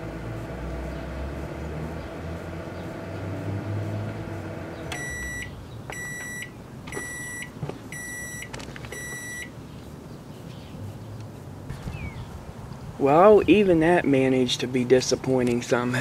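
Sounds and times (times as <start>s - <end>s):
microwave oven humming: 0.0s - 8.4s
microwave beeps: 4.9s - 9.5s.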